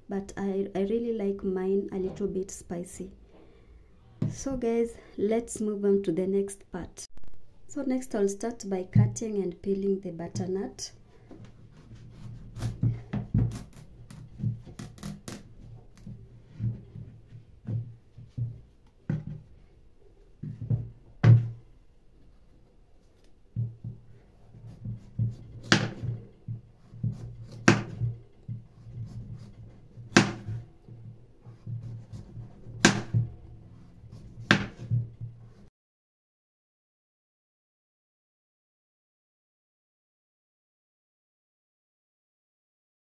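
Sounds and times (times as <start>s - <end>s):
knife cutting squash: 11.7s - 16.1s, 26.8s - 28.1s.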